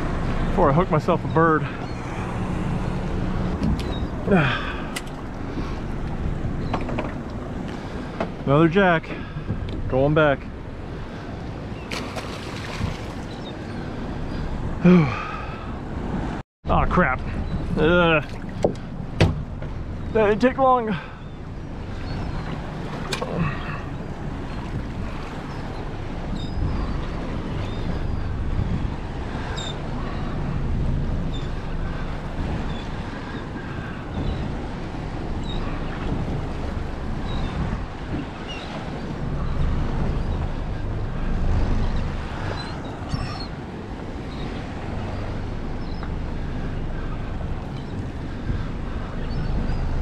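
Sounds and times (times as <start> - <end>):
wind buffeting microphone: 0.0 - 16.4, 17.1 - 50.0
seabirds calling: 0.0 - 50.0
sea water sloshing: 10.6 - 14.5.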